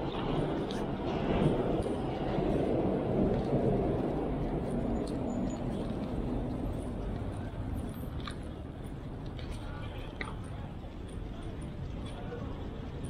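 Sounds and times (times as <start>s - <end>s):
passing vehicle rumble: 0.0s - 10.1s.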